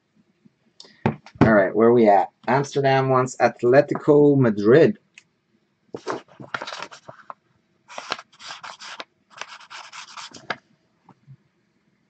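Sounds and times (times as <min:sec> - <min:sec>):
marker scribbling on paper: 0:07.9 - 0:10.5.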